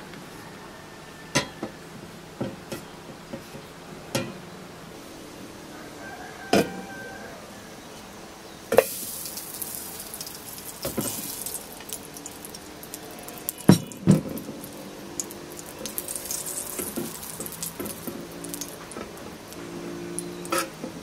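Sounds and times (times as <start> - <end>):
butter sizzling in a pan: 8.8 - 20.7.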